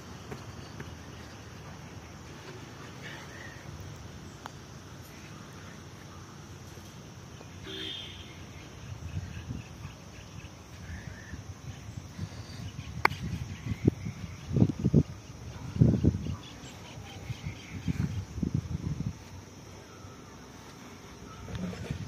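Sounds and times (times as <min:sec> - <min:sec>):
faint bird chirps: 0:07.4 - 0:21.9
low wind rumble: 0:08.4 - 0:20.5.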